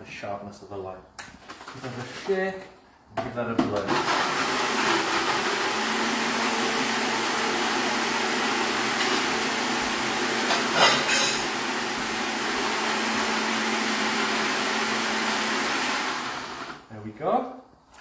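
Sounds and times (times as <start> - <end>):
electric blender whining: 3.9 - 16.8.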